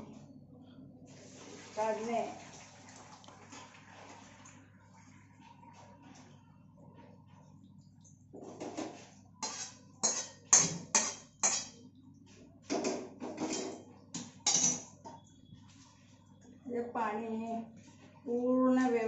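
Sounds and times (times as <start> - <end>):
metal pot clanking and scraping: 8.4 - 11.8, 12.7 - 15.0.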